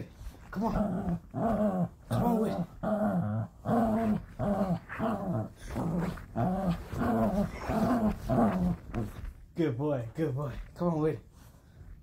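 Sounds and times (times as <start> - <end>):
dog growling in play: 0.4 - 9.3.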